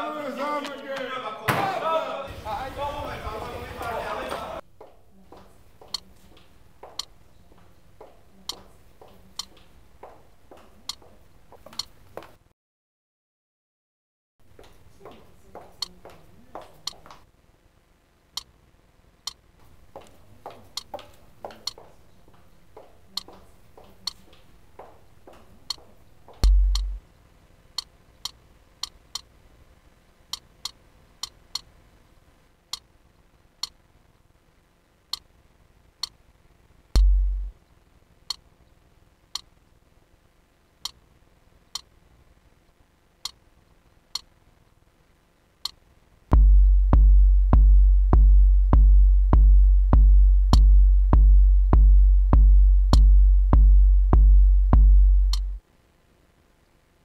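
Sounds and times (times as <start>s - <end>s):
deep bass thuds: 26.4s - 27.0s, 37.0s - 37.5s, 46.3s - 55.6s.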